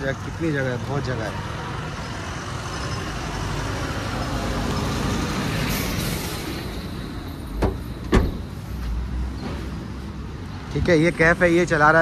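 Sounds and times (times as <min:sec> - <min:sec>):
road traffic: 0:00.0 - 0:12.0
car tailgate thumping shut: 0:07.6 - 0:08.5.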